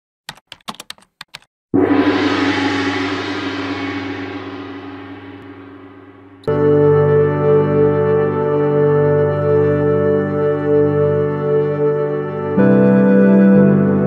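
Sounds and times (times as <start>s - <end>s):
gong ringing: 1.8s - 8.2s
music: 1.8s - 14.0s.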